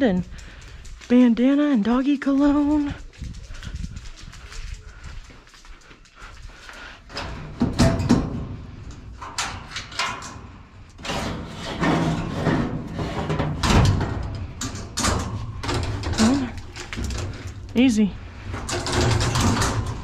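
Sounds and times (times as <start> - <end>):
metal cage clanking and rattling: 7.1 - 17.7, 18.4 - 20.0.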